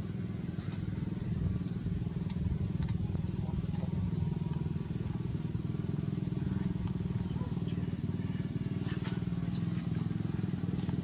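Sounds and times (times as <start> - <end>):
small engine idling: 0.0 - 11.0
faint sharp clicks: 2.2 - 3.0, 5.4 - 5.6.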